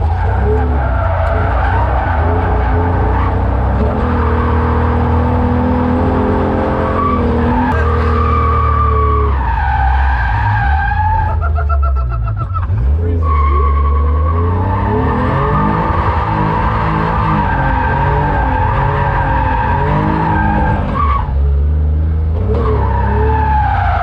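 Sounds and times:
tires squealing: 0.0s - 21.6s, 22.3s - 24.0s
car engine revving: 0.0s - 24.0s.

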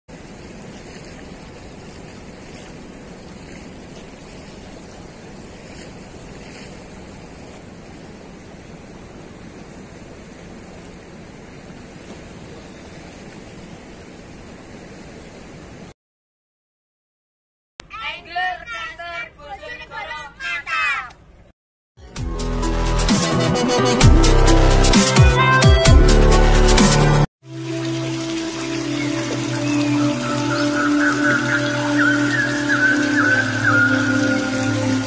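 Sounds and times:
river water roaring below weir: 0.1s - 15.9s, 27.5s - 35.0s.

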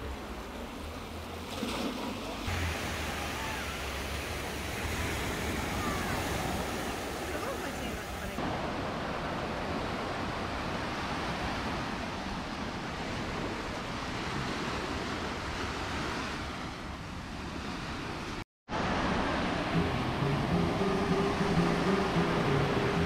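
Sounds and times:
surf washing onto beach: 0.0s - 16.9s, 17.6s - 23.0s
music: 19.6s - 23.0s.

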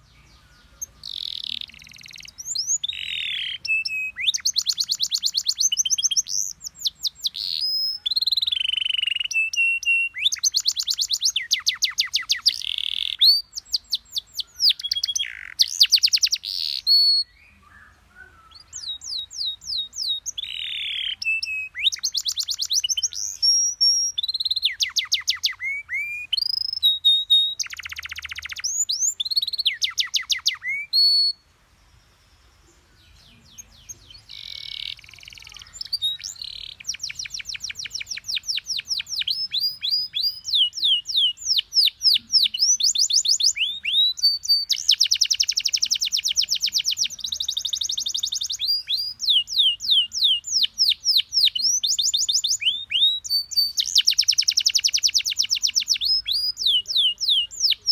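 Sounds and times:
canary singing: 0.0s - 31.5s, 32.2s - 57.9s.

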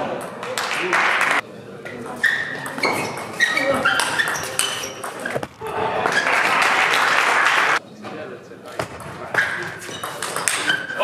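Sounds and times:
shoe squeaks on floor: 2.2s - 5.6s, 9.3s - 11.0s
spectators applauding: 6.0s - 7.8s.

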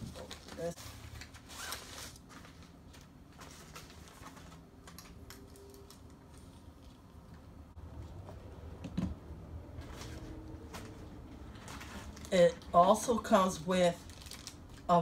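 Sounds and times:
low room hum: 0.0s - 15.0s.

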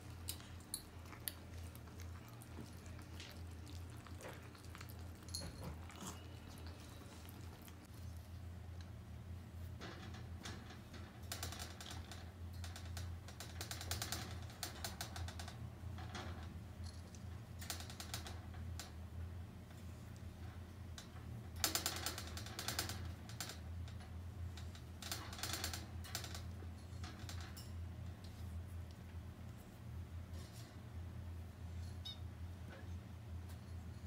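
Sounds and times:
steady low hum: 0.0s - 13.6s
wire cage clicking and rattling: 9.8s - 19.0s, 20.4s - 28.3s.

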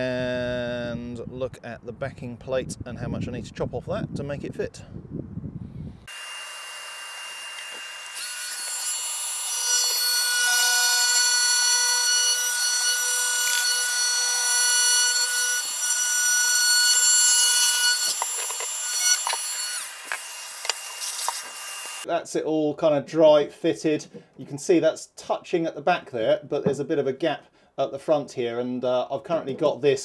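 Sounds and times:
multi-tool saw cutting: 6.1s - 22.1s.

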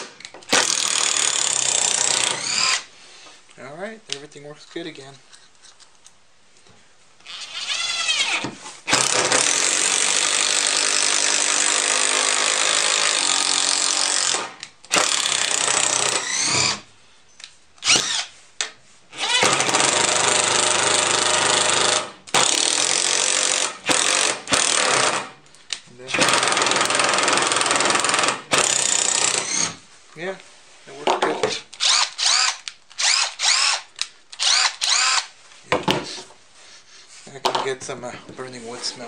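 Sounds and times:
impact driver hammering: 0.0s - 2.8s, 19.3s - 25.3s, 26.2s - 29.8s
impact driver motor whining: 0.5s - 2.8s, 13.1s - 16.8s, 17.8s - 18.3s, 31.8s - 35.3s.

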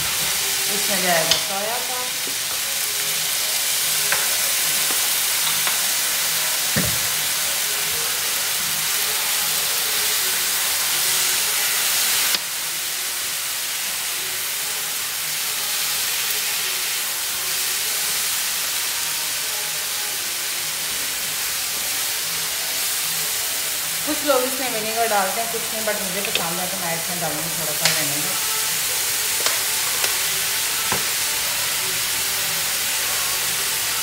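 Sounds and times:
food sizzling in a pan: 0.0s - 34.0s
spatula turning food: 24.4s - 33.5s.

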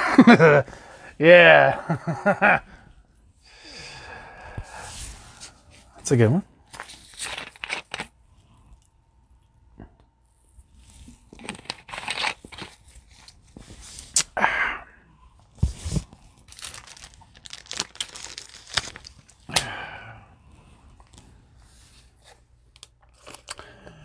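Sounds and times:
plastic packaging crinkling: 6.7s - 8.2s, 11.2s - 14.1s, 15.8s - 19.6s, 22.7s - 23.6s.

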